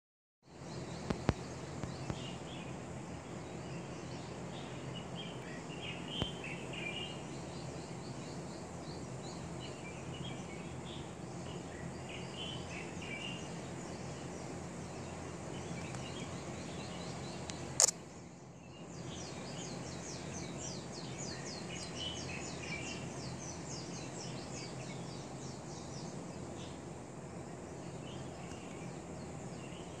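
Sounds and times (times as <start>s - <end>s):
songbirds singing and calling: 0.4s - 30.0s
sharp click: 17.4s - 18.0s.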